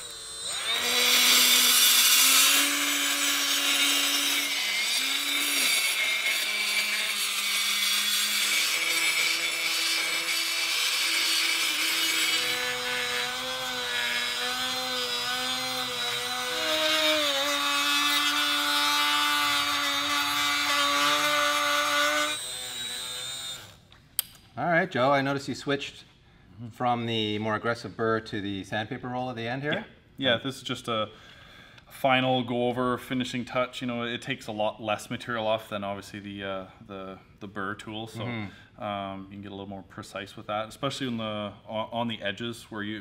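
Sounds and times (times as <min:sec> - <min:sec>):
die grinder whining: 0:00.0 - 0:23.8.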